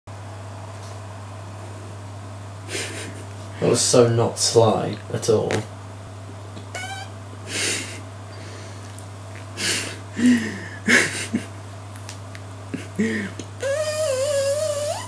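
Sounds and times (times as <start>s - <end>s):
low electrical hum: 0.1s - 15.0s
woman's snorting laughter: 7.5s - 8.0s, 9.6s - 11.5s.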